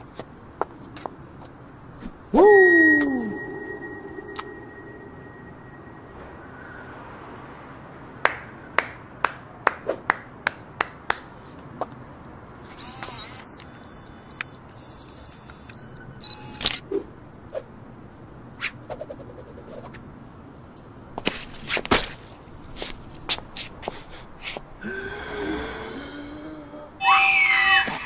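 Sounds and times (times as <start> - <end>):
short high-pitched beeps: 12.8 - 16.7.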